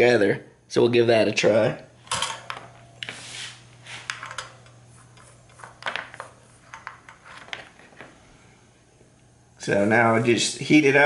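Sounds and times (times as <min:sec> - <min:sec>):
steady low hum: 0:00.0 - 0:11.0
clicks and rustles of handling tools: 0:03.8 - 0:08.2.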